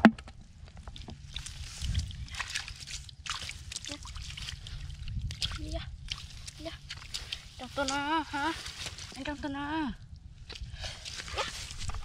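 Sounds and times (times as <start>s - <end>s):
steady low rumble: 0.0s - 12.0s
grass and twigs rustling: 0.4s - 12.0s
hands sloshing in muddy water: 1.2s - 9.2s.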